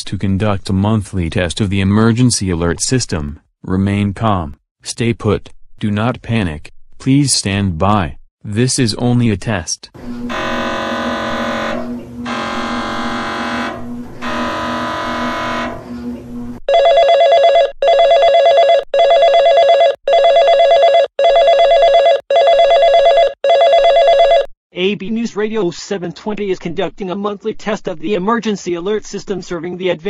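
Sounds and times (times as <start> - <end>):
buzzy alert tone: 10.0 - 16.6.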